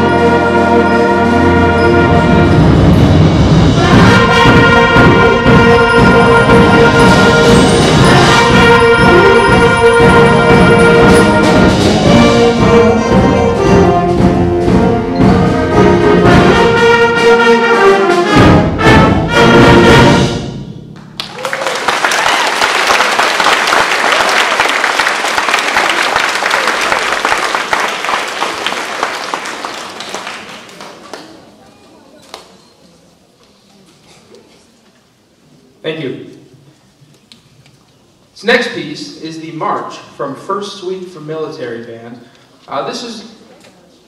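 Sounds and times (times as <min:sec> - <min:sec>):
concert band playing closing chords: 0:00.0 - 0:21.3
audience applause: 0:21.0 - 0:31.6.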